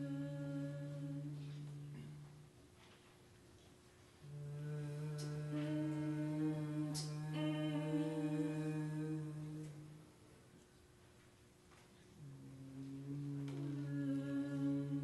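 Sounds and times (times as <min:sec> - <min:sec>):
women chanting a hummed drone: 0:00.0 - 0:02.5, 0:04.2 - 0:10.2, 0:12.2 - 0:15.0.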